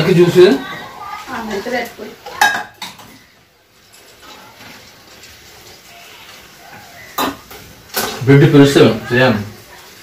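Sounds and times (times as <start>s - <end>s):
kitchen handling noise: 2.2s - 3.2s, 7.2s - 8.5s.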